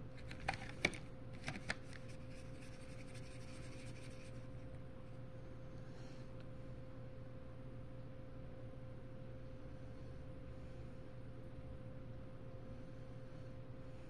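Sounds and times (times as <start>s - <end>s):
brush scrubbing paint: 2.0s - 4.5s.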